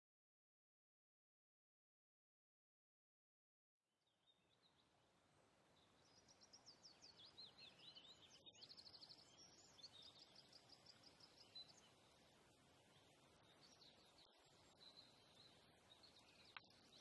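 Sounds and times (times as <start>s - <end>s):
faint forest ambience: 3.9s - 17.0s
songbird trilling: 5.8s - 17.0s.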